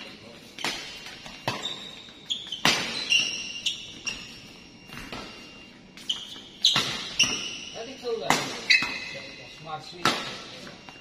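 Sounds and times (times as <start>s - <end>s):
shoes squeaking on floor: 0.0s - 11.0s
rackets striking shuttlecock: 0.5s - 4.2s, 6.6s - 9.2s, 10.0s - 10.5s.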